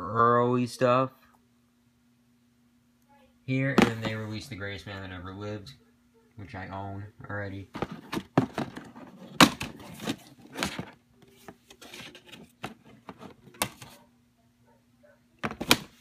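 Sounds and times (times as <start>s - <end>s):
soft rubbing of plastic case: 7.8s - 14.1s.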